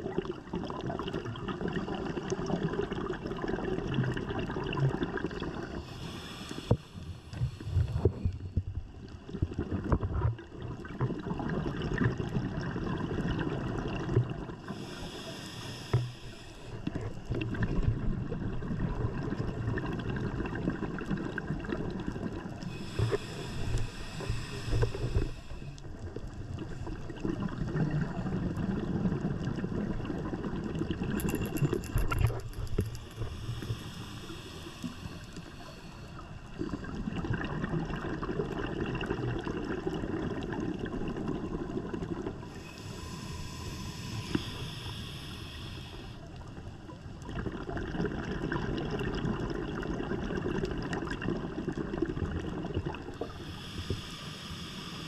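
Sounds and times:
exhaled bubbles gurgling: 0:00.0 - 0:55.0
regulator inhalation hiss: 0:05.7 - 0:08.3, 0:14.7 - 0:16.8, 0:22.7 - 0:25.8, 0:32.7 - 0:36.2, 0:42.5 - 0:46.3, 0:53.2 - 0:55.0.

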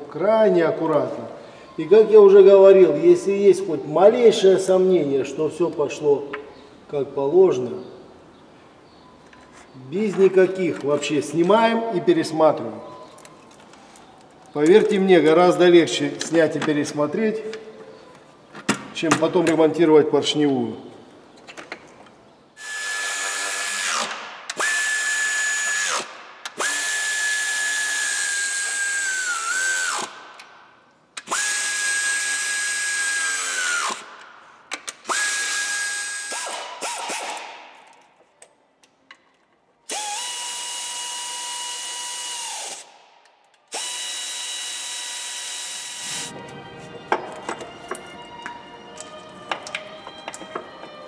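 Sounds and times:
pneumatic ratchet whining: 0:22.6 - 0:30.2, 0:31.2 - 0:34.1, 0:34.9 - 0:37.4, 0:39.9 - 0:42.9, 0:43.7 - 0:46.3.

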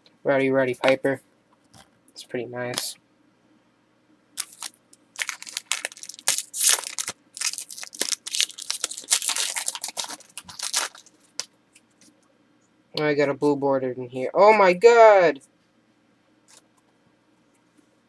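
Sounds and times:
wrapper tearing and crinkling: 0:04.4 - 0:11.5.

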